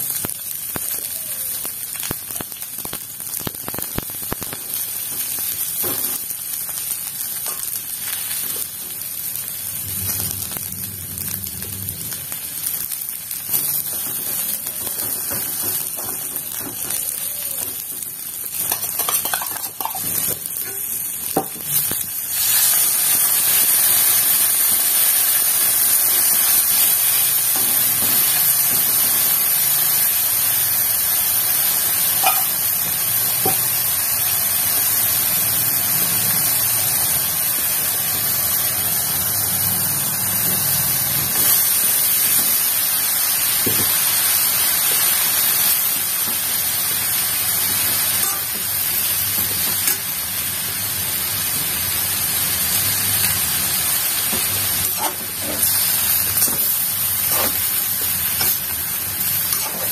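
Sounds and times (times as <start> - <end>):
food sizzling in oil: 0.0 - 59.9
metal spoon clinking on pan: 18.6 - 20.8, 32.2 - 32.5.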